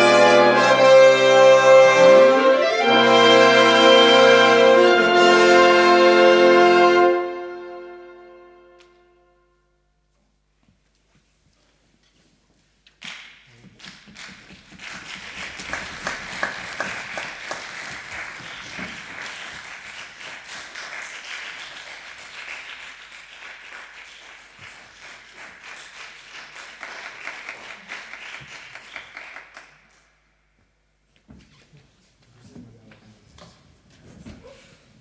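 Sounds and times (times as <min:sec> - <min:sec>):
audience applauding: 0:13.1 - 0:30.0.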